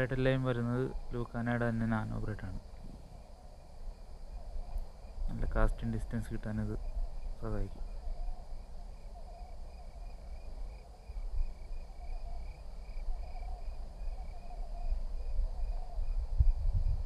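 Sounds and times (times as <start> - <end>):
high-pitched insect drone: 0.0 - 17.0
insects chirping: 0.0 - 17.0.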